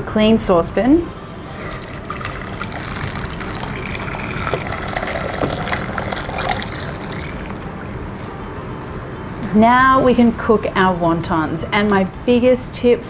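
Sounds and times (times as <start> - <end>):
broth pouring into saucepan: 1.1 - 8.2.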